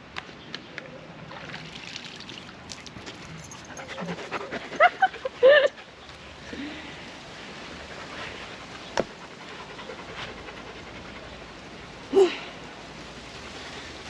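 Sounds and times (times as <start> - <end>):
dog panting: 3.5 - 6.3, 7.8 - 11.9.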